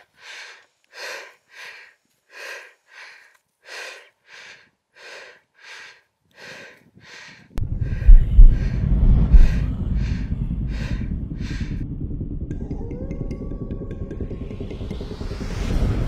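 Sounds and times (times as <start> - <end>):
person breathing hard: 0.0 - 12.3
loud low rumble: 7.6 - 16.0.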